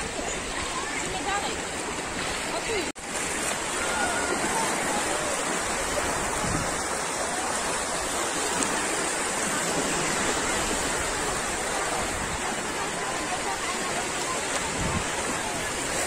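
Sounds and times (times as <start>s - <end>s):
sea surf rushing: 0.0s - 16.0s.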